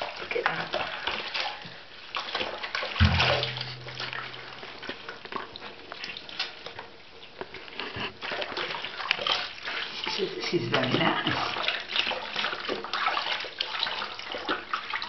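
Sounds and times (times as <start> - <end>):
water sloshing in a bucket: 0.0 - 4.8, 8.1 - 15.0
knock: 3.0 - 4.5
low hum: 3.0 - 4.8.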